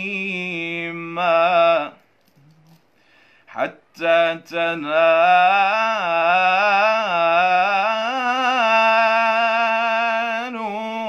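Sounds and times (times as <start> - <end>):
young man chanting: 0.0 - 2.0, 3.5 - 11.0.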